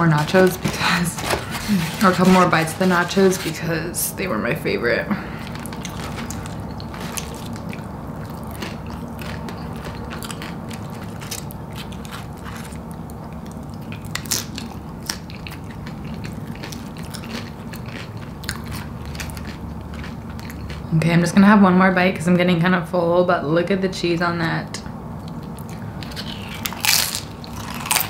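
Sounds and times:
chewing crunchy chips: 5.2s - 21.0s, 25.2s - 28.0s.

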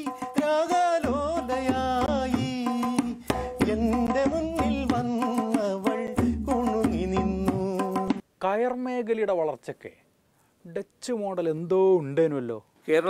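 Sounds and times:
person singing: 0.0s - 8.2s
tabla drumming: 0.0s - 8.2s.

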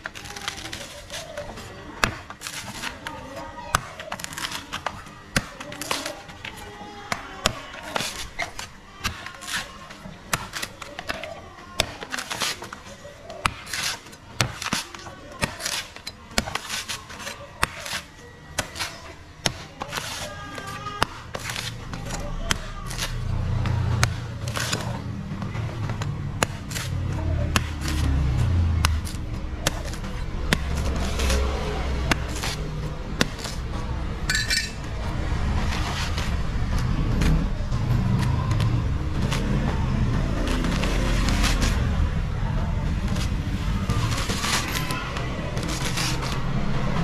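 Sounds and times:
cleaver chopping coconut husk: 0.0s - 47.0s.

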